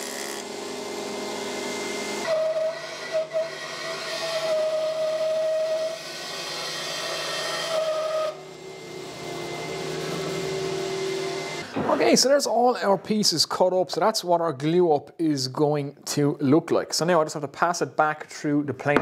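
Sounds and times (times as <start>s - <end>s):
bandsaw motor running: 0.0s - 11.7s
bandsaw blade whining through wood: 0.0s - 11.8s.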